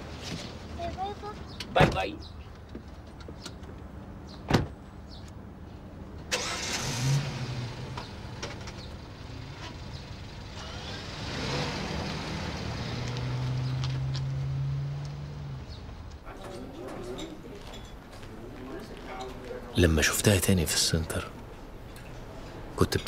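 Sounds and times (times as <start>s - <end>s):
car door thud: 4.5s - 4.8s
car engine starting and running: 6.2s - 16.3s.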